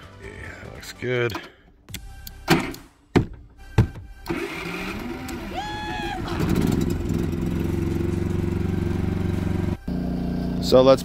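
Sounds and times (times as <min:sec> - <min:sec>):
starter clicks: 0:04.2 - 0:05.6
generator engine running: 0:04.2 - 0:11.0
high pitched shout: 0:05.3 - 0:07.0.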